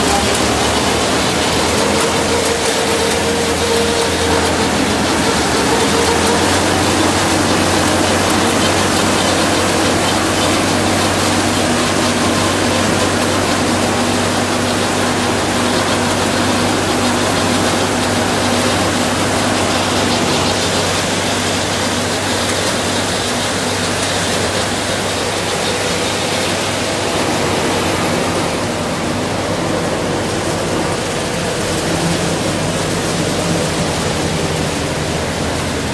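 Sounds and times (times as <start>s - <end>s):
harvester engine drone: 0.0s - 35.9s
rush of machinery noise: 0.0s - 35.9s.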